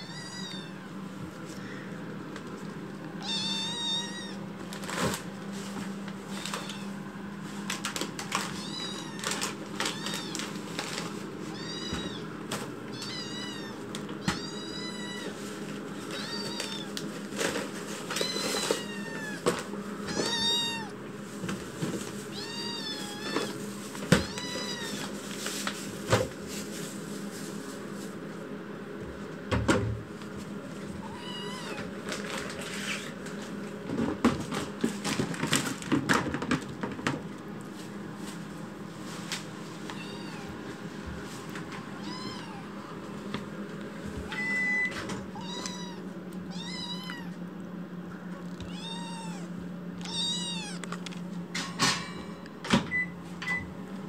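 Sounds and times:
kitten meowing loudly: 0.0 - 0.9, 3.2 - 4.4, 11.5 - 12.3, 12.9 - 15.3, 16.1 - 16.9, 20.1 - 20.9, 22.3 - 23.6, 31.0 - 31.8, 42.0 - 42.7, 44.4 - 47.4, 48.6 - 50.8
steady low hum: 0.0 - 54.0.

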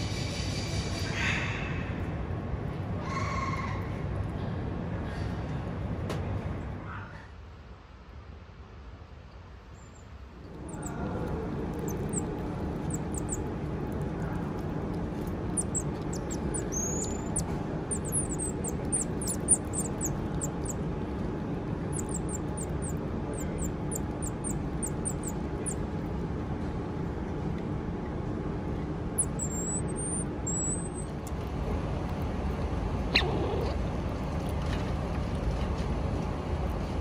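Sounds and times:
steady low hum: 10.2 - 37.0
marmosets chirping: 10.5 - 20.8, 21.8 - 25.9, 29.2 - 31.2.

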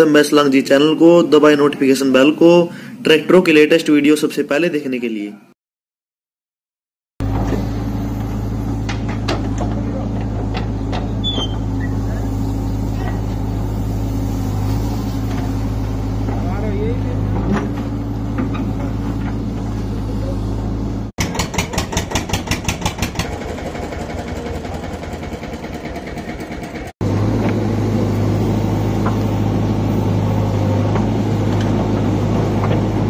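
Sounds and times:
diesel engines running: 7.2 - 33.0.

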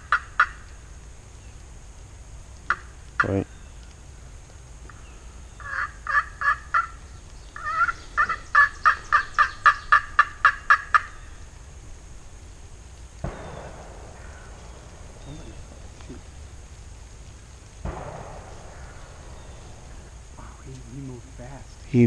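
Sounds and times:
wild turkey yelping: 4.9 - 11.5, 17.9 - 20.6
dull thump: 17.8 - 20.3.

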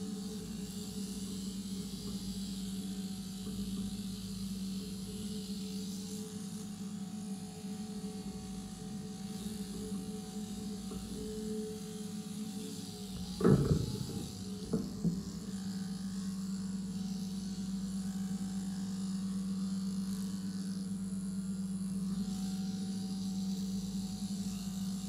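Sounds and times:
electric shearing machine humming: 0.0 - 25.0
sharp knocks: 13.2 - 15.5.

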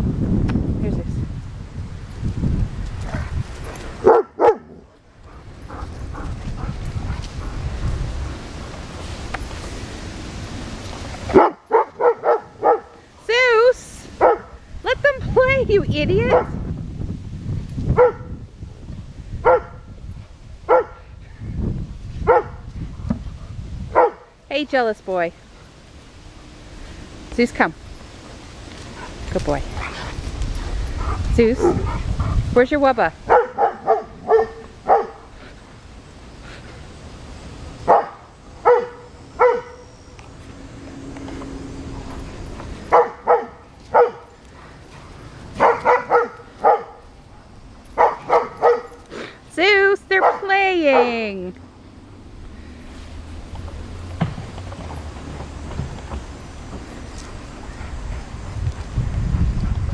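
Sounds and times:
dog barking sharply: 4.0 - 4.8, 11.3 - 12.9, 14.2 - 14.5, 19.5 - 19.8, 20.7 - 21.0, 22.3 - 22.6, 24.0 - 24.2, 33.3 - 35.2, 37.9 - 39.8, 42.9 - 44.2, 45.6 - 47.0, 48.0 - 49.0
low rough dog rumble: 28.9 - 32.6.

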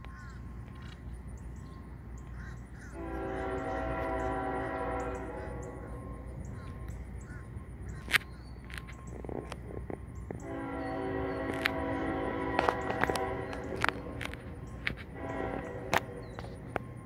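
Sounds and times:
steady low rumble: 0.0 - 17.0
distant locomotive air horn: 2.4 - 7.7, 10.4 - 17.0.

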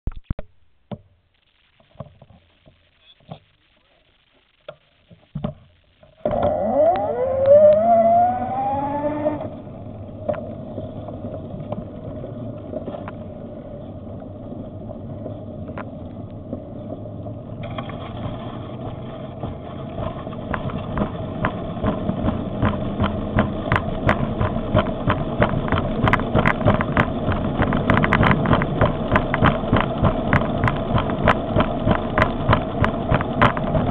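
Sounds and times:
electric bicycle motor whine: 6.2 - 16.9
knocks and clicks: 19.4 - 33.9.

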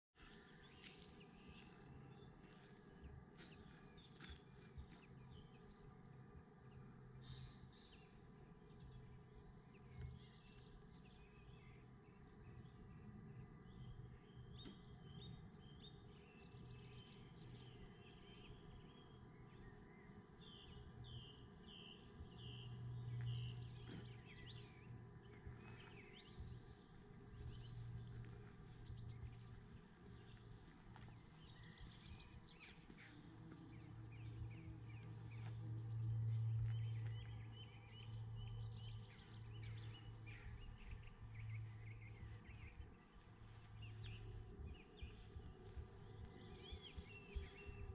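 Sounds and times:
faint birdsong chirps: 0.2 - 47.9
low hum: 0.2 - 47.9.

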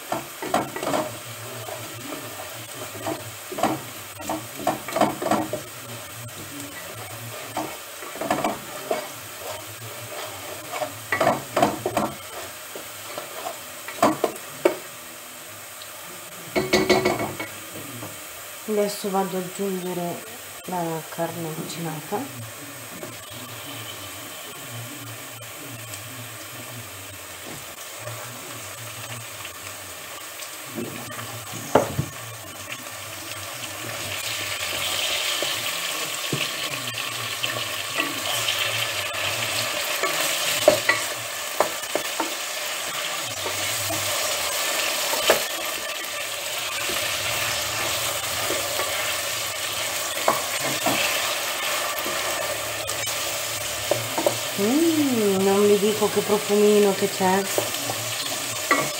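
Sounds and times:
meat sizzling in a pot: 0.0 - 58.9
wooden spoon knocking on pot: 11.1 - 12.2, 16.5 - 18.2.

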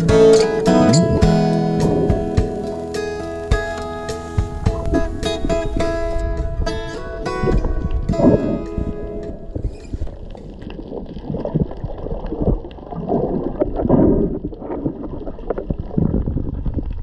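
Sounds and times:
bubbles gurgling underwater: 0.0 - 2.6, 4.5 - 17.0
muffled underwater water rushing: 0.0 - 17.0.

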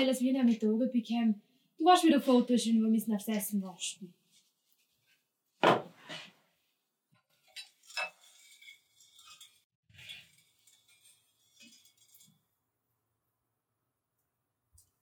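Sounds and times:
bowl knocking on wooden table: 5.6 - 6.0.

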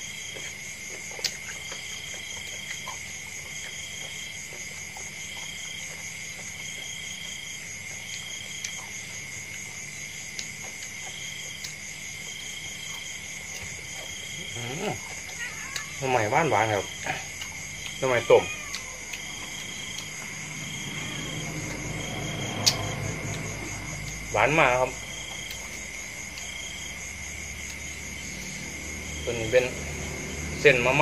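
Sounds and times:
insects trilling: 0.0 - 31.0
repeating insect call: 0.0 - 31.0
clicks of eating food: 15.0 - 16.0, 17.0 - 20.2.

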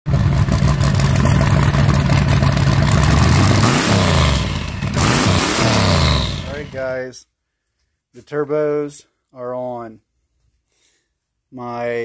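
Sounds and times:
engine revving: 0.1 - 6.9.

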